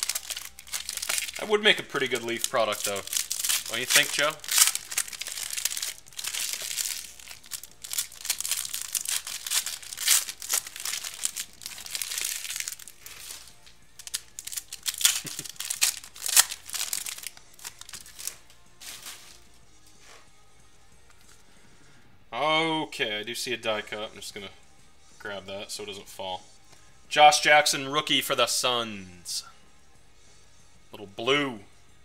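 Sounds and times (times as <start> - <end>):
foil wrappers crinkling and tearing: 0.0 - 19.5.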